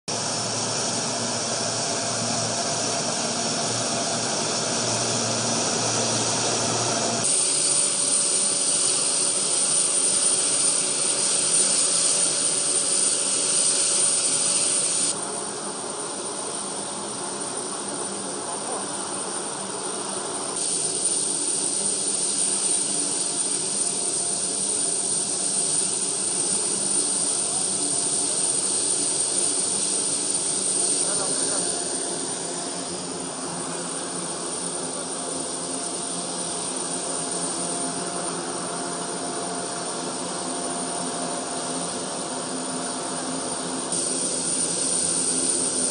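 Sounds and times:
turboprop plane engines whining: 0.2s - 7.2s, 30.8s - 38.4s
propeller wash: 0.5s - 15.2s, 26.3s - 37.6s.

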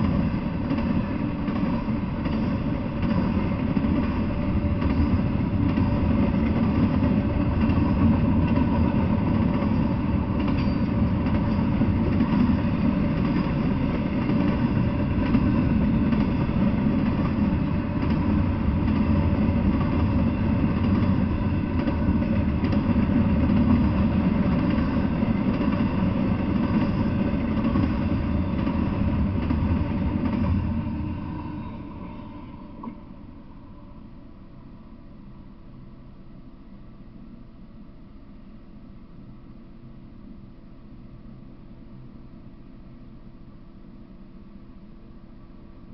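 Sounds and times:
freight train wheels rumbling: 0.0s - 34.4s.

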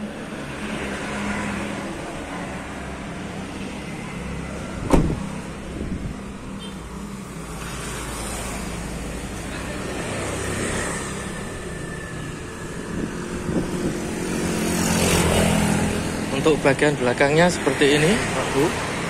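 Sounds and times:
car door slamming: 4.8s - 5.3s.

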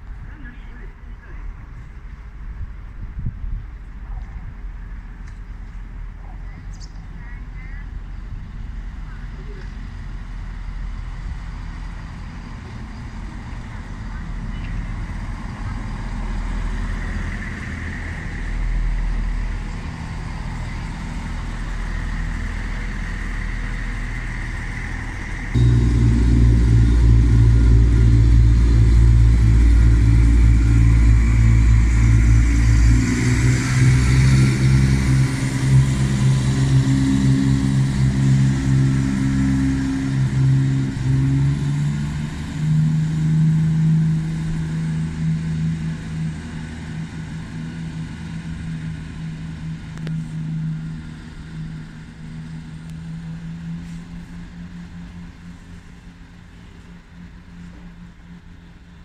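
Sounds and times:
diesel train engine whine: 0.0s - 59.0s
diesel train accelerating: 4.6s - 59.0s.

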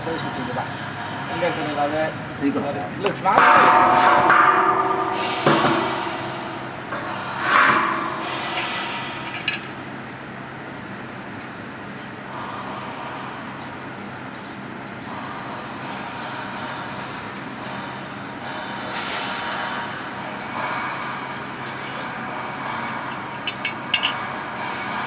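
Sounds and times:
steady low hum: 0.0s - 25.0s
metal scrape: 3.4s - 9.8s
metal clanks on steel basin: 22.8s - 24.2s.

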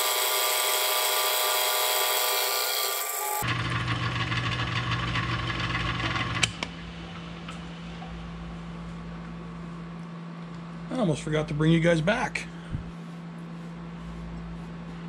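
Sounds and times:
milling machine humming: 0.0s - 9.3s.

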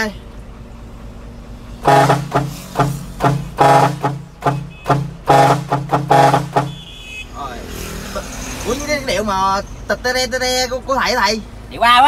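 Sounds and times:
truck air horns playing melody: 1.8s - 7.4s.

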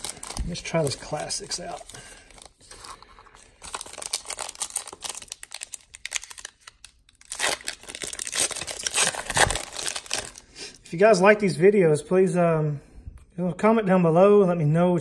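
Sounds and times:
card pack wrapper tearing and crinkling: 0.0s - 10.4s.

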